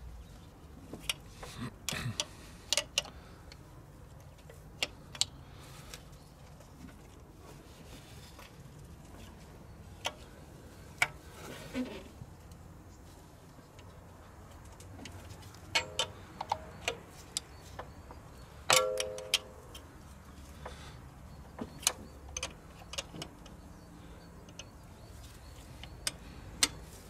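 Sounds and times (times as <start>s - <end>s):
spanner clicking on metal: 15.7s - 17.5s.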